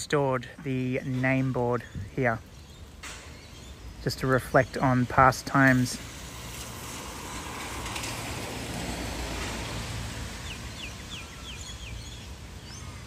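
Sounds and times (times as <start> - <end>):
bird chirping: 0.5 - 5.3, 10.3 - 13.0
car passing: 5.0 - 13.0.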